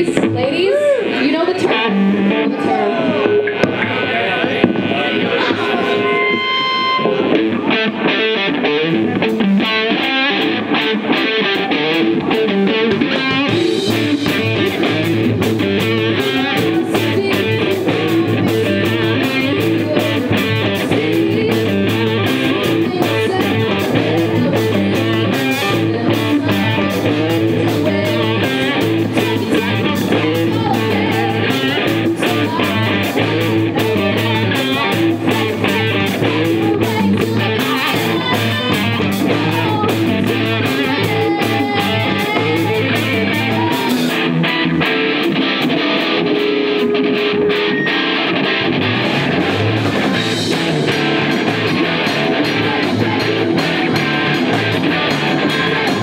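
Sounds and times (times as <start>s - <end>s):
bass guitar: 0.0s - 56.0s
electric guitar: 0.0s - 56.0s
drum kit: 1.3s - 56.0s.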